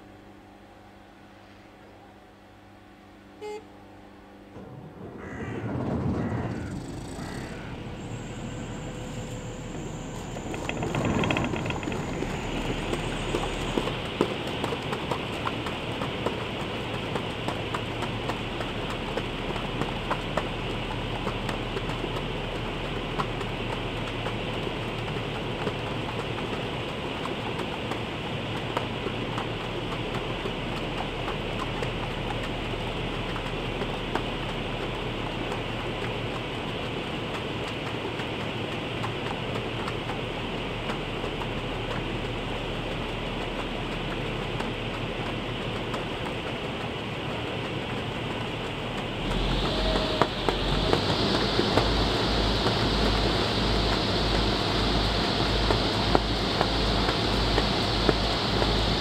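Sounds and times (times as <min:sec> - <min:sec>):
hovercraft engines and fans: 0:00.0 - 0:59.0
thin high whine: 0:00.8 - 0:13.9.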